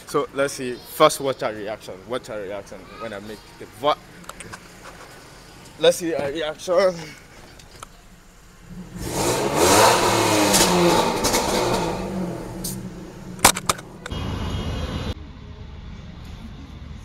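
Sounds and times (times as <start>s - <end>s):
exhaust cracks: 4.2s - 14.2s
car engine revving: 8.1s - 15.2s.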